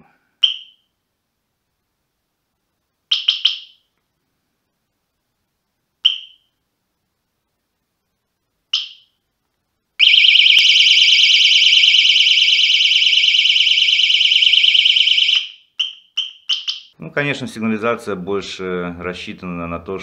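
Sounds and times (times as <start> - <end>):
alarm chirps: 0.4 - 0.9, 3.1 - 3.9, 6.0 - 6.6, 8.8 - 9.2, 10.0 - 17.0
warbling alarm siren: 10.0 - 15.6.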